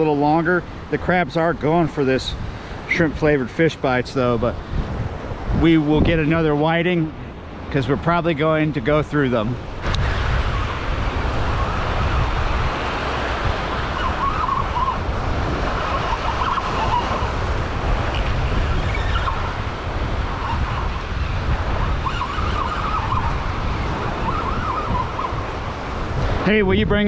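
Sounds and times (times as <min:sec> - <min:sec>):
small waves washing up beach: 0:00.0 - 0:26.7
wind buffeting microphone: 0:00.0 - 0:27.0.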